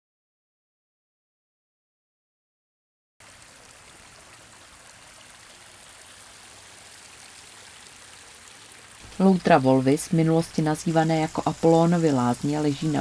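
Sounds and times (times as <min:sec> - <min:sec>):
water trickling over stones: 0:03.2 - 0:13.0.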